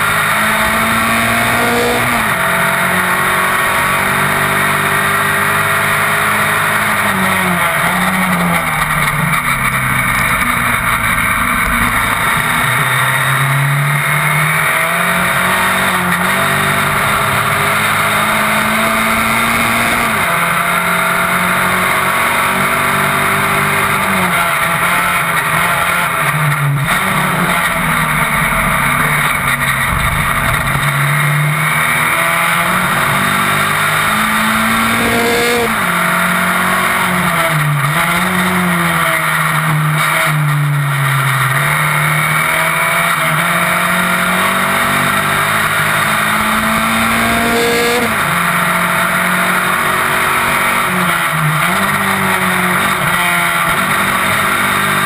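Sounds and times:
race car engine revving: 0.0 - 55.0
wind noise: 27.0 - 32.2.

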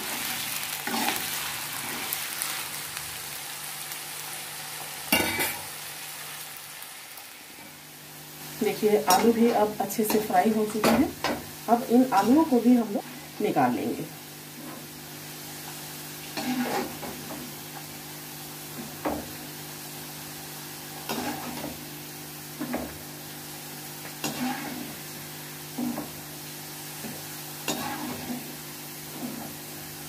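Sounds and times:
potatoes sizzling in hot oil: 0.0 - 30.0
utensil scraping a pan: 0.2 - 2.1, 16.4 - 17.4, 21.1 - 21.8, 24.2 - 25.0, 27.7 - 29.6.

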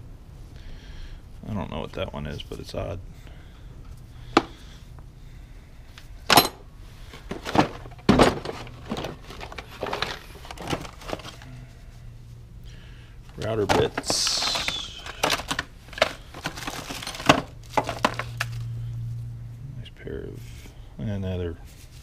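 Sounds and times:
tools and plastic bins clattering: 6.2 - 11.5, 13.3 - 18.7.

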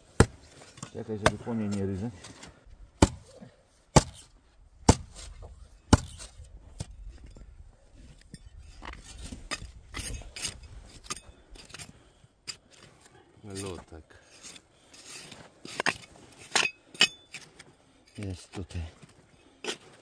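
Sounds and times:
spade striking frozen ground: 0.1 - 3.3, 3.9 - 7.0, 8.8 - 12.9, 13.6 - 18.7
scraping and scuffing of soil: 8.1 - 20.0.

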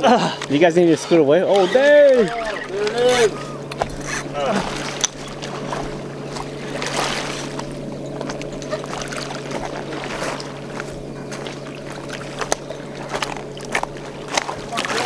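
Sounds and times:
river water lapping on rocks: 0.0 - 15.0
steady low hum: 0.0 - 15.0.

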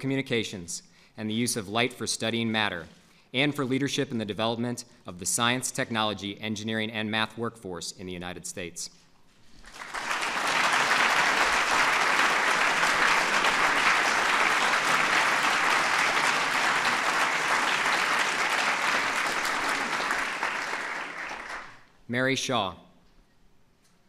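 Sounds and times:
audience applauding: 9.6 - 21.9.

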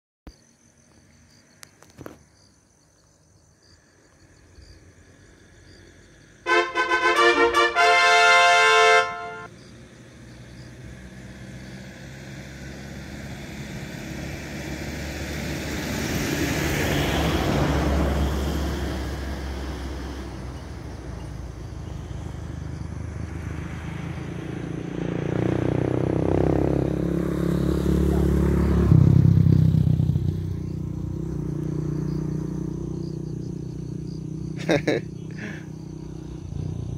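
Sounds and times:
engine approaching: 5.0 - 36.9
vehicle passing: 5.0 - 36.9
vehicle horn honking: 6.5 - 9.5.

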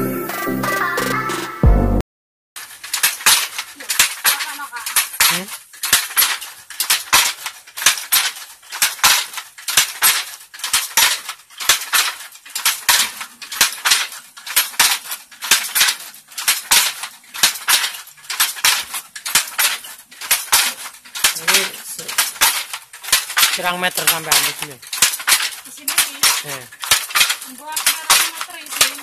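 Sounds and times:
loom batten knocking: 2.6 - 29.0
loom shuttle clacking: 2.6 - 29.0.

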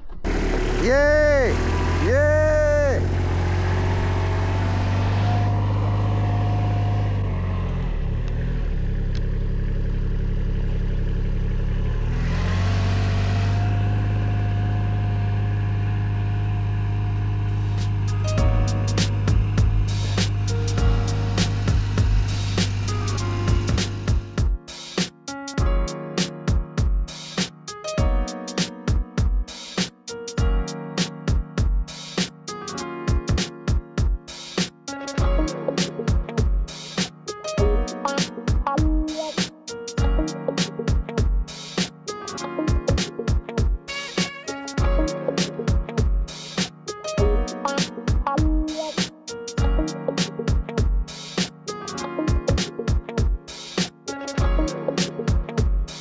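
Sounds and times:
utility vehicle diesel engine: 0.0 - 24.4
vehicle whine: 0.0 - 24.4
held keyboard notes: 17.5 - 56.0
drum machine beat: 18.3 - 21.1, 21.7 - 30.6, 33.1 - 56.0.

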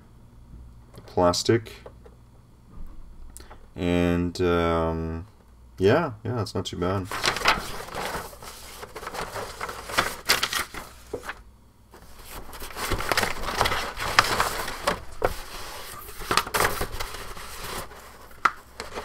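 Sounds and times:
paper sheets rustling: 7.0 - 19.0.

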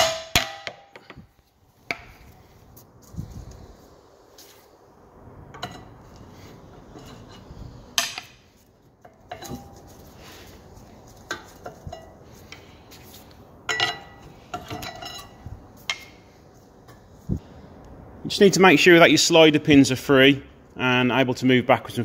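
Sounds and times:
metal brake parts clinking: 13.7 - 16.3.

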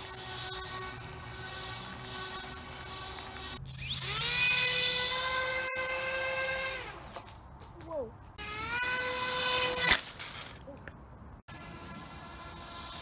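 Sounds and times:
electric motor high whine: 0.0 - 7.0.

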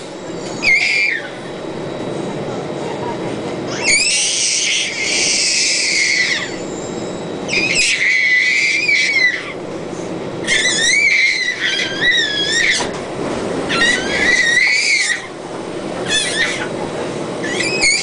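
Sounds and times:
baby squealing: 3.7 - 6.6, 7.5 - 9.6, 10.4 - 12.9, 13.7 - 15.3, 16.0 - 16.7, 17.4 - 18.0.

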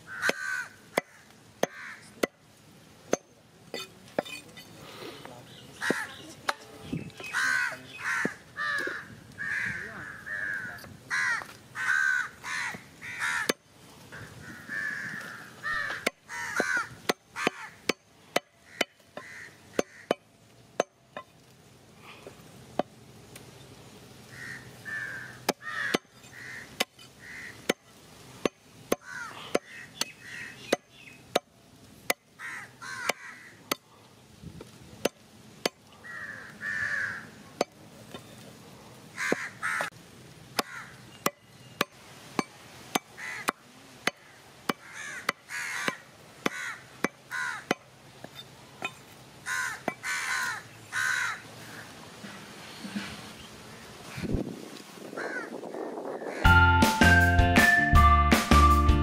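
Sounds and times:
crows cawing: 0.0 - 2.2, 5.8 - 6.2, 7.2 - 18.0, 18.6 - 20.2, 24.3 - 27.8, 28.9 - 30.7, 32.4 - 33.8, 36.0 - 37.4, 39.1 - 39.9, 40.6 - 41.0, 43.1 - 47.9, 49.4 - 52.0, 55.1 - 55.6, 56.2 - 56.5
cleaver chopping on wooden block: 15.9 - 20.2, 40.6 - 47.9.

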